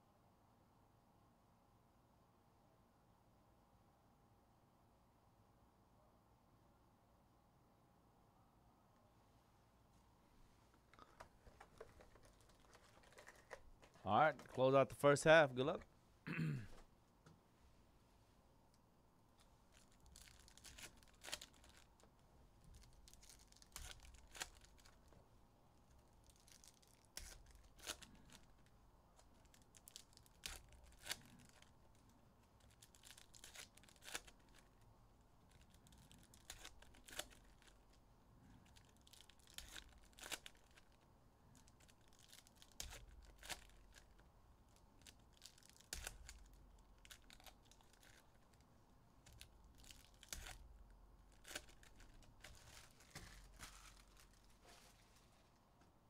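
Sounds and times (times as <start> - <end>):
cards handled and stacked: 10.8 - 14.8, 19.7 - 22.1, 22.7 - 25.1, 26.3 - 31.7, 32.6 - 34.8, 35.5 - 38.0, 38.7 - 41.0, 41.6 - 44.2, 49.2 - 55.9
foil wrappers tearing and crinkling: 19.7 - 22.0, 22.7 - 25.1, 26.2 - 32.0, 32.6 - 34.8, 35.5 - 37.9, 38.6 - 41.0, 41.6 - 48.6, 49.2 - 55.2.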